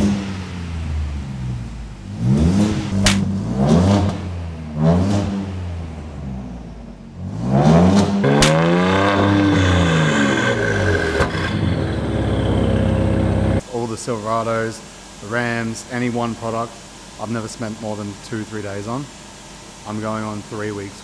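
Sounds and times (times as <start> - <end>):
sharp exhaust cracks: 0.0 - 5.4, 7.6 - 13.6
car engine revving: 0.0 - 13.6.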